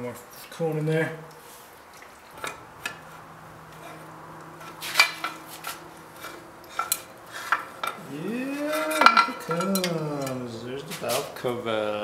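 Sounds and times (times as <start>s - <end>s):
voice-like call rising and falling: 8.0s - 10.4s.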